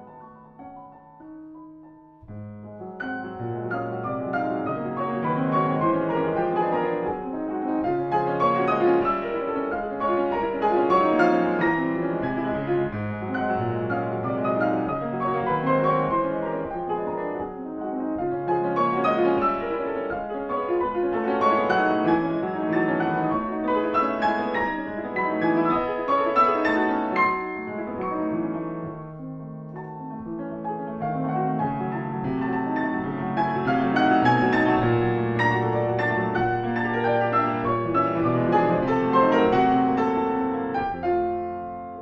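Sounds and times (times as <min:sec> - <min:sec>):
solo piano classical music: 0:00.0 - 0:42.0.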